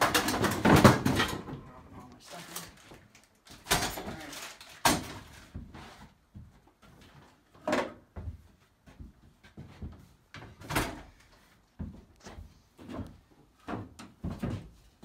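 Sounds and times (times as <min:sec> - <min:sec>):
handling knocks and clunks: 0:00.0 - 0:01.8.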